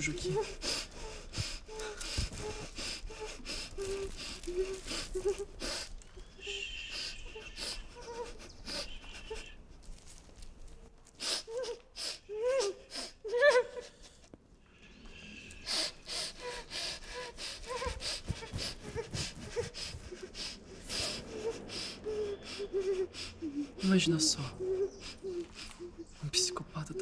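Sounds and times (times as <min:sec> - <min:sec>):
woman whimpering: 0:00.0 - 0:05.8, 0:11.4 - 0:14.2, 0:16.3 - 0:27.0
muffled cries: 0:00.0 - 0:09.7, 0:15.8 - 0:27.0.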